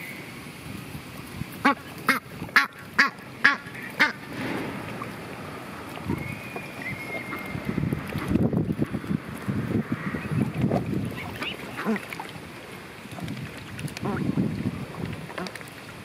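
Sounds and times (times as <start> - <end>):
mallard quacking: 1.6 - 4.2.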